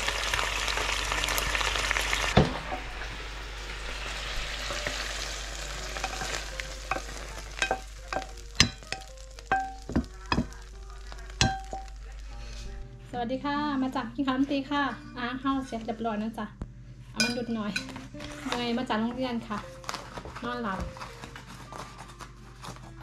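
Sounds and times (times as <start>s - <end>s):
vegetables sizzling in a pan: 0.0s - 12.6s
spatula scraping and clinking: 4.7s - 10.7s, 11.4s - 12.6s
knock on pan: 7.6s - 10.6s, 11.4s - 11.9s.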